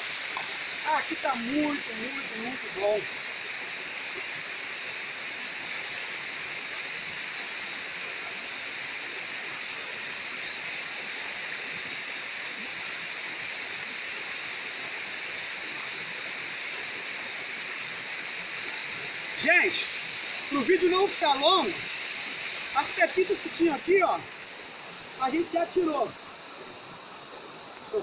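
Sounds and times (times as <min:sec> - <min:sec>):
water running from a hose: 0:00.0 - 0:28.0.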